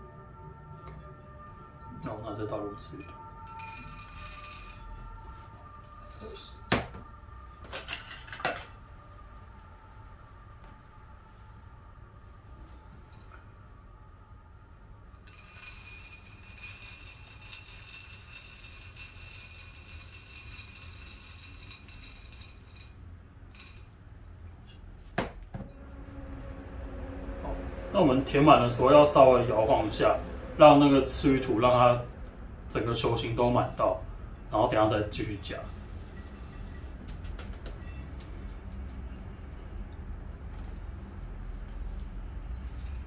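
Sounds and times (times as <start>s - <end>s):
glass beaker clinking down: 3.0s - 4.9s.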